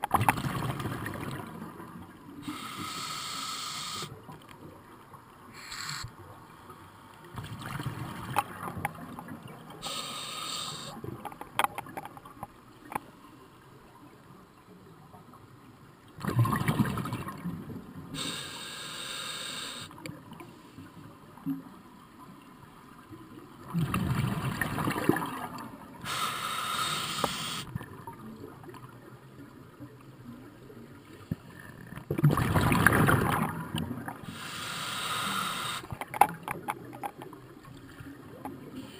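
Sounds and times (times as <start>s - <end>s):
exhaled bubbles rumbling underwater: 0.0s - 2.5s, 7.3s - 9.9s, 16.2s - 18.2s, 23.2s - 26.0s, 32.0s - 34.4s
regulator inhale hiss: 2.4s - 4.2s, 5.5s - 6.1s, 9.8s - 11.0s, 18.2s - 20.9s, 26.0s - 27.7s, 34.2s - 36.0s.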